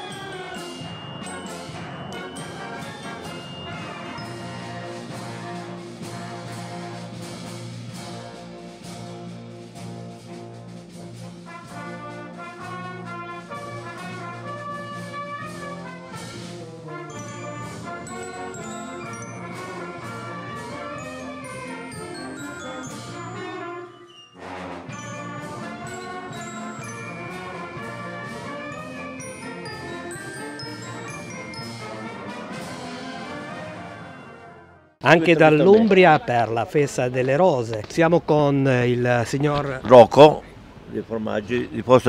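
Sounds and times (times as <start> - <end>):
glockenspiel notes: 0.0 - 6.7, 17.0 - 34.4
higher melody line: 0.0 - 6.9, 17.0 - 32.9
brass sustained chords: 0.0 - 37.1
wind band playing: 0.0 - 42.0.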